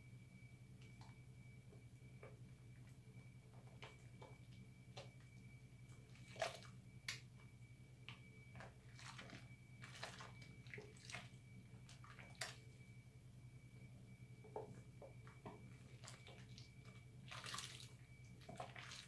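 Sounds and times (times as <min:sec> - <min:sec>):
faint high whine: 0:00.0 - 0:19.0
soapy hands squelching: 0:08.8 - 0:12.6, 0:15.9 - 0:19.0.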